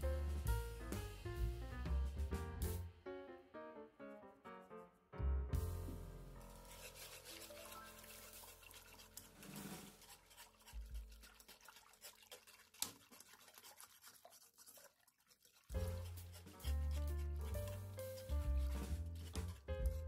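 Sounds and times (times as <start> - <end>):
background piano music: 0.0 - 10.1, 15.7 - 20.0
whisk scraping in a pot: 6.4 - 20.0
whisk wires clicking on pot: 6.6 - 20.0.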